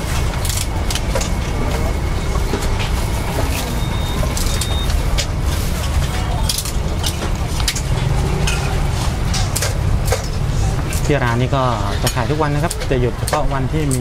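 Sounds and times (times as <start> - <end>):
steady low rumble: 0.0 - 14.0
metal utensils clinking on pans: 5.2 - 13.4.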